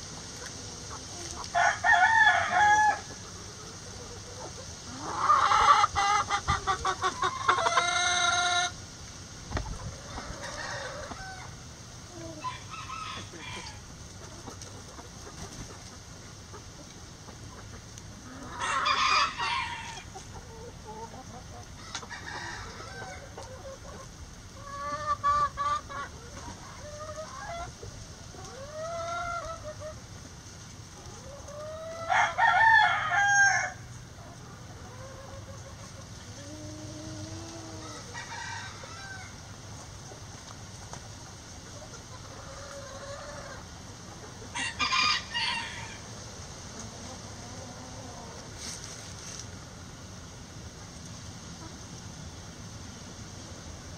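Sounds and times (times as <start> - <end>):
chickens clucking: 0.0 - 53.9
rooster crowing: 1.5 - 3.1, 12.4 - 13.8, 18.5 - 20.1, 32.0 - 33.8, 37.7 - 39.4, 44.6 - 46.0.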